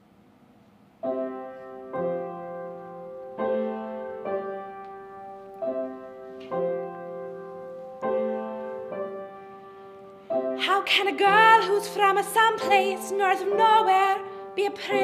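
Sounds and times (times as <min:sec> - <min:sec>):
piano chords ringing: 0:01.0 - 0:15.0.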